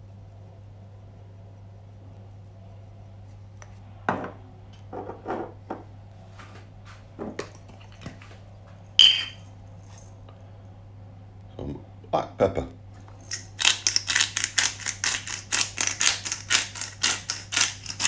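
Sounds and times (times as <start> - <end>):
jars knocking on stone worktop: 9.0 - 9.4
sharp clink: 9.0 - 9.5.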